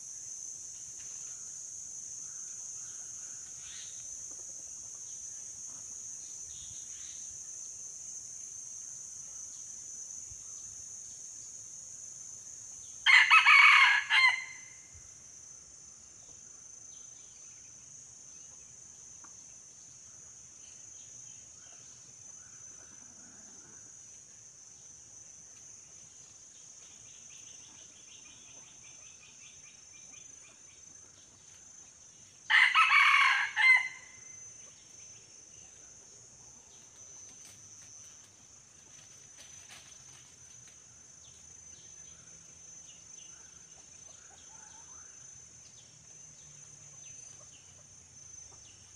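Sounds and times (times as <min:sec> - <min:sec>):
insects droning: 0:00.0 - 0:48.9
rooster crowing: 0:13.0 - 0:14.8, 0:32.5 - 0:34.3.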